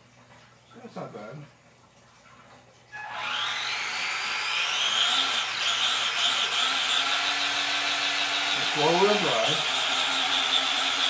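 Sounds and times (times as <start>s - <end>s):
electric motor whining: 3.0s - 11.0s.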